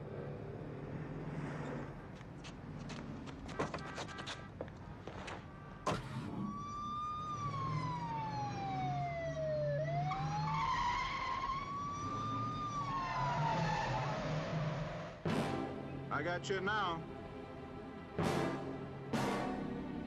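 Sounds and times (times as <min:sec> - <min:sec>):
police siren wailing: 0:05.9 - 0:15.2.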